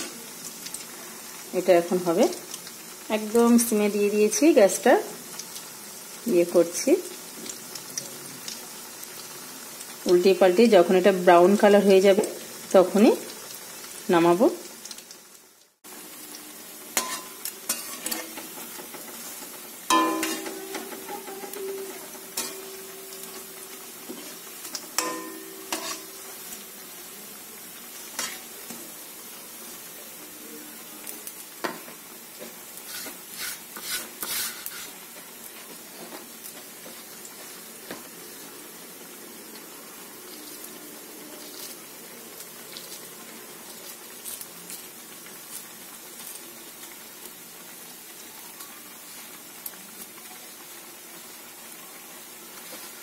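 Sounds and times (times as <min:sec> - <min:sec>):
fritters sizzling in hot oil: 0:00.0 - 0:53.0
spatula scraping a pan: 0:17.0 - 0:26.5, 0:32.8 - 0:35.1.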